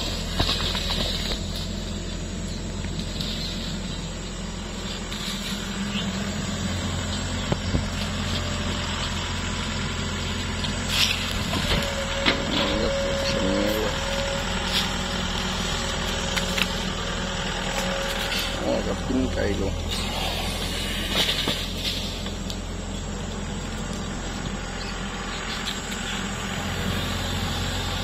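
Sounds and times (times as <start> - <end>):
excavator diesel engine: 0.0 - 28.0
high whine: 0.0 - 28.0.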